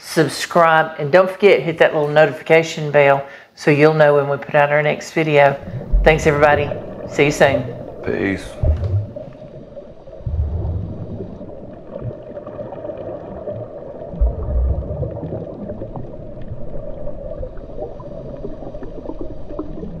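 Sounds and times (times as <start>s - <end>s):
deep underwater rumble: 5.5s - 20.0s
underwater gurgling and bubbling: 5.5s - 20.0s
low thud: 5.6s - 9.5s.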